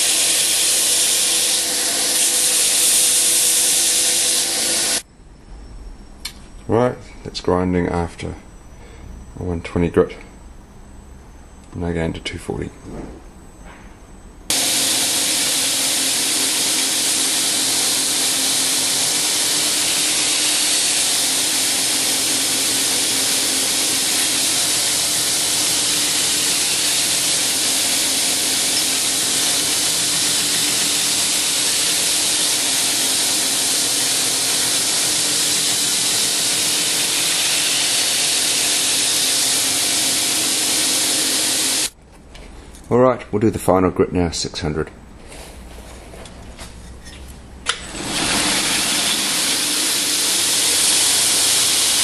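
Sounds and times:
belt grinder hissing: 0.0s - 5.0s, 14.5s - 42.0s, 47.7s - 52.0s
faint motor hum: 0.0s - 42.9s.

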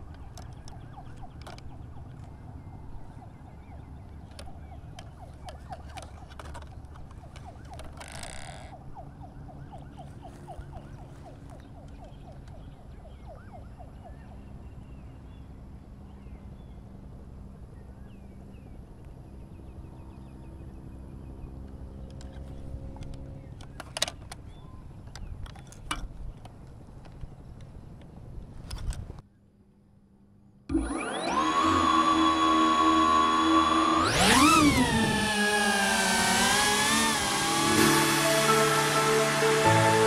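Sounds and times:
wind rumble on microphone: 24.6s - 29.2s.

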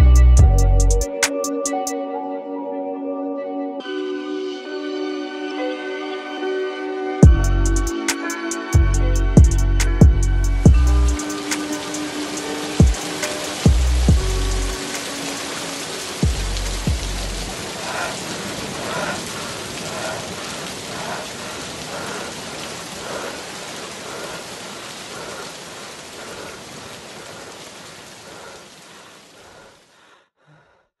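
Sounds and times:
rain hissing: 7.3s - 30.2s
deep bass note: 8.9s - 11.2s, 13.7s - 14.8s.

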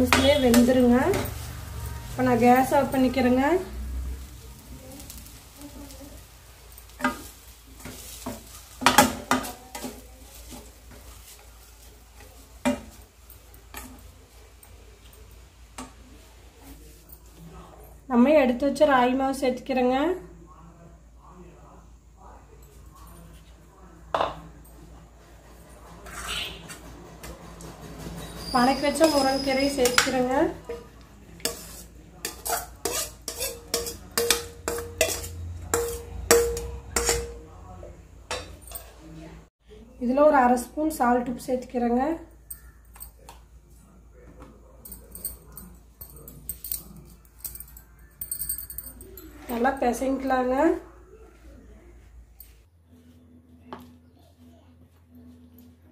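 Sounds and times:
spoon knocking metal pan: 0.0s - 1.4s, 28.9s - 37.4s
metal spoon clinking and scraping pan: 0.0s - 16.0s, 28.1s - 37.6s, 38.3s - 39.1s.

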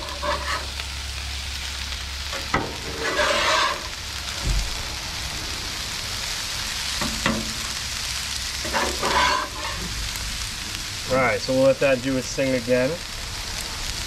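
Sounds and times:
metal spatula scraping griddle: 0.0s - 0.8s, 2.4s - 4.0s, 8.5s - 10.0s
food sizzling on a griddle: 0.0s - 14.0s.

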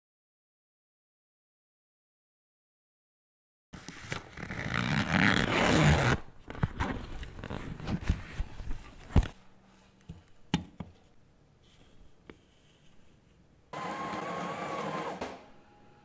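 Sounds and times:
rustling and handling: 3.8s - 13.5s
zipper pulled open: 3.9s - 8.1s.

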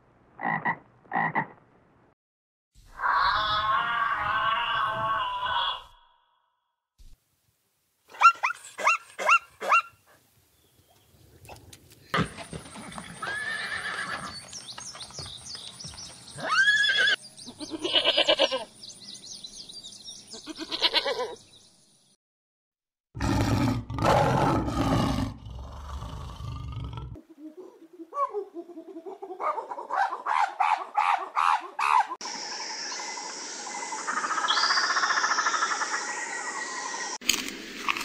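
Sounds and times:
goats bleating: 17.6s - 18.7s
loud rough animal call: 23.2s - 27.1s.

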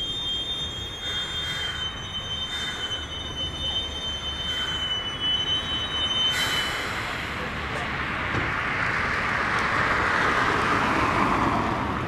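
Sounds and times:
train wheels squealing: 0.0s - 8.0s
rumble of wagons: 0.0s - 12.0s.

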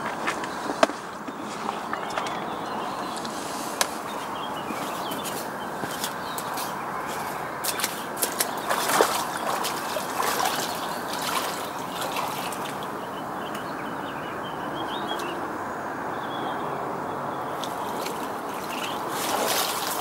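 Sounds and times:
boots splashing through water: 0.0s - 13.6s, 17.6s - 20.0s
small birds chirping: 0.0s - 20.0s.

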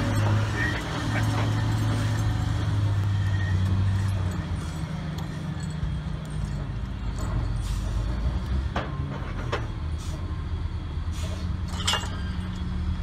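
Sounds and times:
diesel engine droning: 0.0s - 13.0s.

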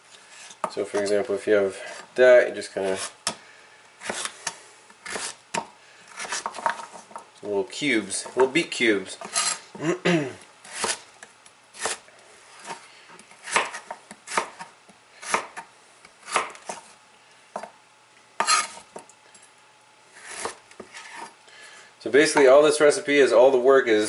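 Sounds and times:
knife chopping on cutting board: 4.0s - 6.8s, 10.7s - 11.0s, 11.8s - 12.0s, 13.4s - 15.7s, 16.3s - 16.9s, 18.4s - 18.8s, 20.3s - 21.3s.

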